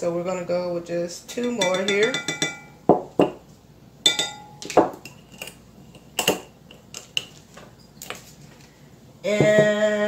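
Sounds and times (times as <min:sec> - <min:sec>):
metal spoon clinking on glass: 0:01.3 - 0:02.8, 0:04.0 - 0:05.2.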